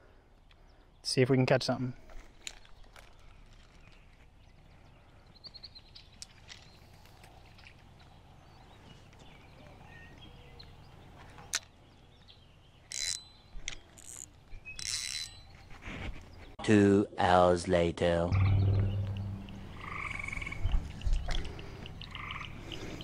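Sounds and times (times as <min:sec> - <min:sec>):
hands handling fishing reel: 0:12.9 - 0:15.4
bird chirps: 0:18.3 - 0:23.0.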